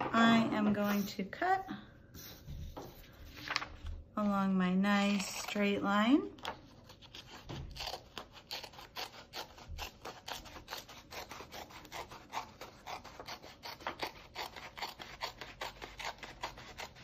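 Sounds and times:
scissors snipping paper: 6.4 - 17.0.

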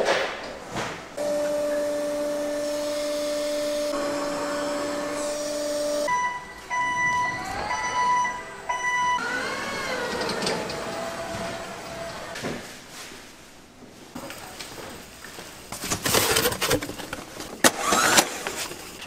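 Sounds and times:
factory machinery whining: 0.5 - 12.4.

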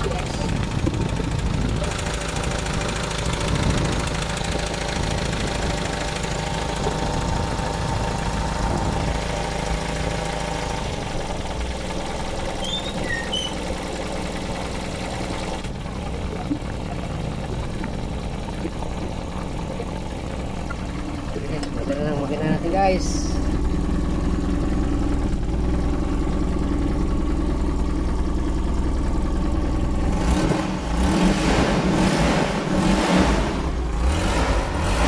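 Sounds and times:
petrol engine idling: 0.0 - 31.1, 33.4 - 35.0.

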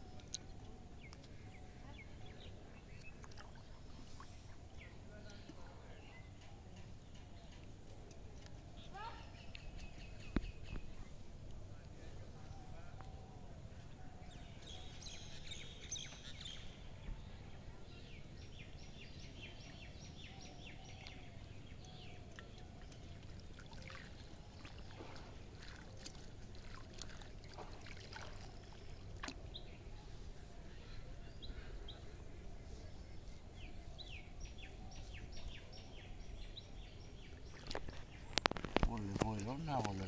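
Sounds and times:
faint steady background noise: 0.0 - 40.0
water sloshing and splashing: 2.9 - 4.4, 22.2 - 29.6, 37.3 - 40.0.

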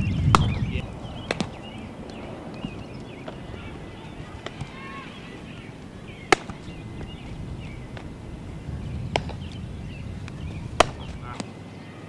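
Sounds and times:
baseball bat knocks: 1.2 - 8.4, 9.1 - 9.6, 10.2 - 11.5.

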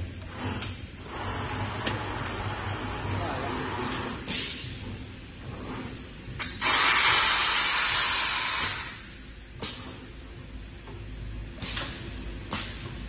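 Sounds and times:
compressed air hiss: 6.4 - 9.1.

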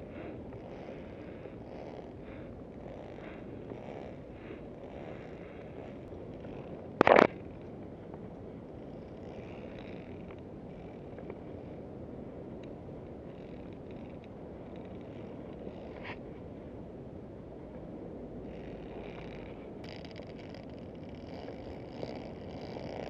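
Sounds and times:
faint ticks: 0.1 - 11.6, 12.5 - 16.2, 18.5 - 23.0
camera rubbing against clothing: 1.6 - 2.2, 4.9 - 7.4, 15.0 - 16.2, 18.5 - 23.0.

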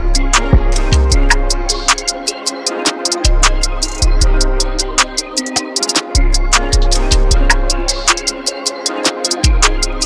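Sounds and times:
background music with drums: 0.0 - 10.0
kick drum: 9.4 - 9.7.

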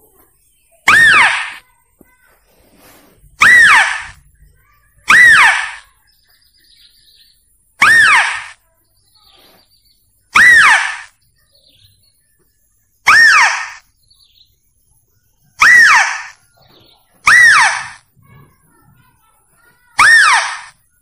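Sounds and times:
animal lure call squeal: 0.9 - 1.6, 3.4 - 4.2, 5.1 - 5.9, 7.8 - 8.6, 10.4 - 11.1, 13.1 - 13.8, 15.6 - 16.4, 17.2 - 18.0, 20.0 - 20.8.

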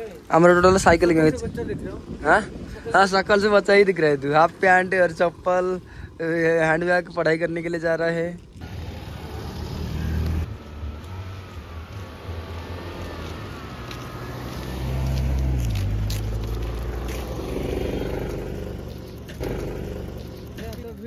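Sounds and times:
road noise: 0.0 - 21.0
vehicle engine running: 14.8 - 21.0.

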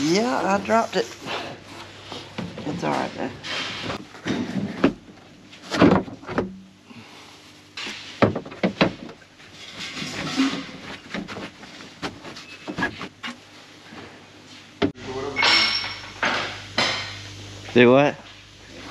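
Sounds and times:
scraping and rustling: 9.0 - 14.7.

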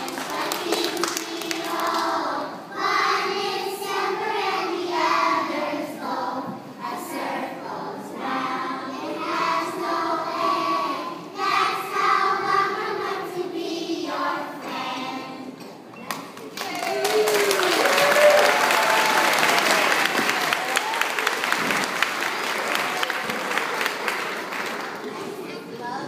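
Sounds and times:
children's choir singing: 0.0 - 16.0.

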